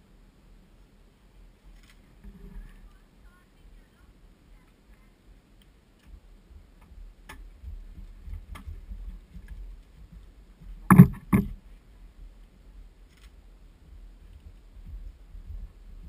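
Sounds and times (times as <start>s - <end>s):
wind rumble on microphone: 6.0s - 16.0s
sharp knocks: 10.9s - 11.6s.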